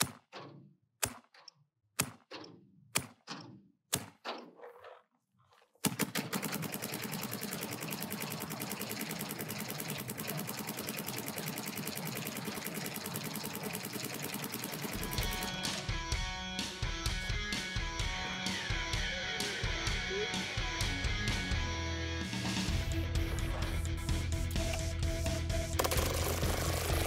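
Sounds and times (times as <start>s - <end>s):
paintball marker firing: 2.0s - 4.7s, 5.8s - 15.7s, 25.8s - 27.0s
music: 14.9s - 27.0s.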